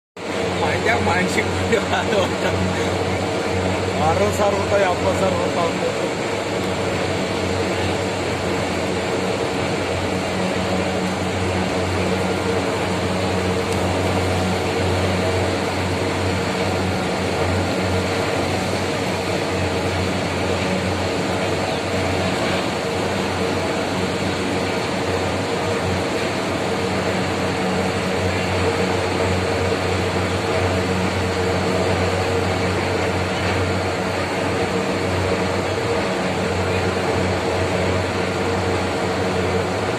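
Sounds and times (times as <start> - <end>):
heavy machinery droning: 0.2 - 39.9.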